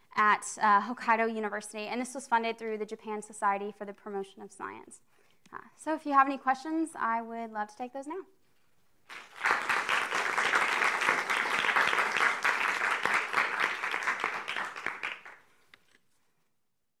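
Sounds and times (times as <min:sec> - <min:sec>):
audience applauding: 0:09.1 - 0:15.4.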